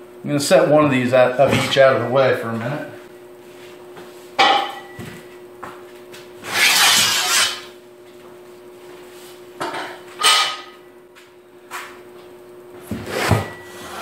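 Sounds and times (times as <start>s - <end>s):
metal scrape: 6.5s - 7.7s.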